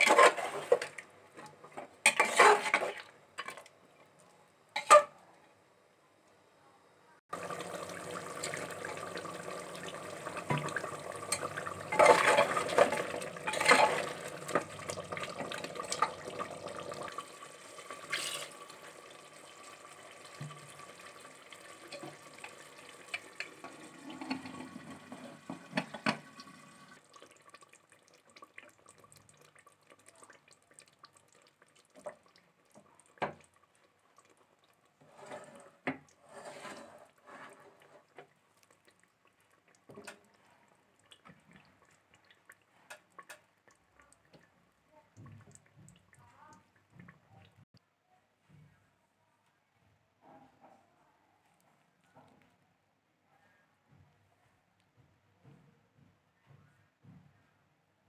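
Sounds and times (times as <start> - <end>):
faint cooking sounds: 0.0 - 58.0
pot clattering: 2.0 - 3.6, 7.4 - 17.2
water pouring and splashing: 2.0 - 3.7, 7.3 - 44.6.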